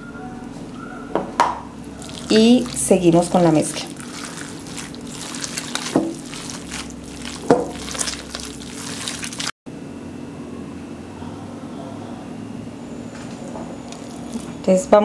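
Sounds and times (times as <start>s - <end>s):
hands kneading wet mixture: 1.8s - 9.6s, 13.9s - 14.7s.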